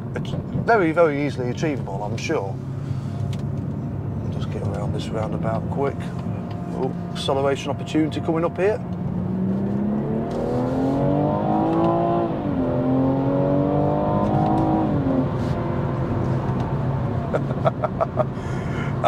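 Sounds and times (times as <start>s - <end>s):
car engine accelerating hard: 2.2s - 19.0s.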